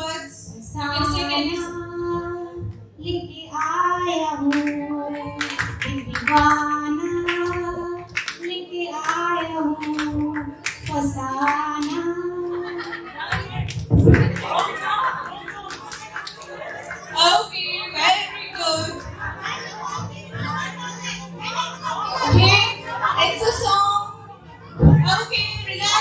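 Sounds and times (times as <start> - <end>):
woman singing into microphone: 0.0 - 13.0
hand claps: 4.5 - 6.6, 7.2 - 12.0, 13.3 - 17.0.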